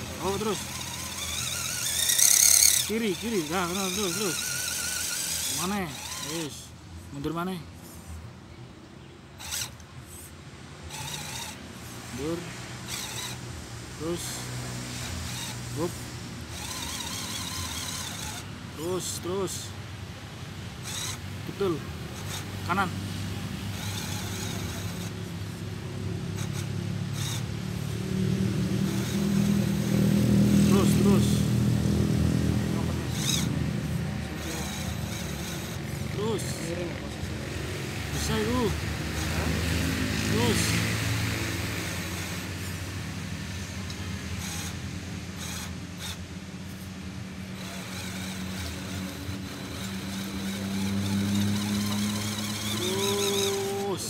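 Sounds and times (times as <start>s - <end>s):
tires crackling on pine needles: 0.0s - 8.2s, 20.8s - 54.0s
toy truck motor humming: 0.0s - 8.2s, 9.4s - 54.0s.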